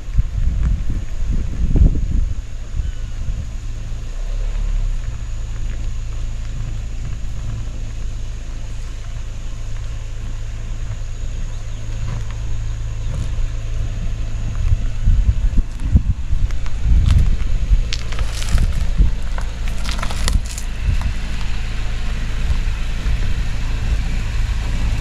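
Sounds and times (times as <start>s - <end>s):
car engine droning: 0.0s - 25.0s.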